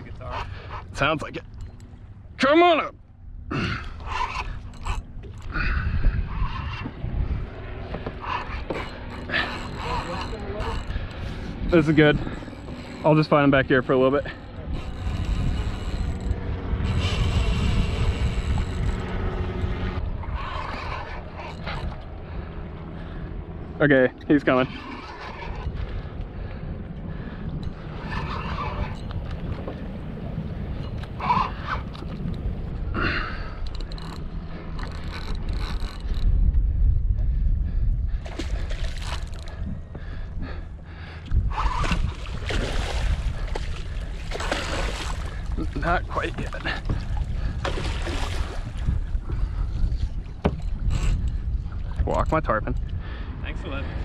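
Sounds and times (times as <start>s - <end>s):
engine drone: 0.0s - 36.4s
wind rumble on microphone: 3.0s - 54.0s
fish splashing in water: 41.8s - 45.5s.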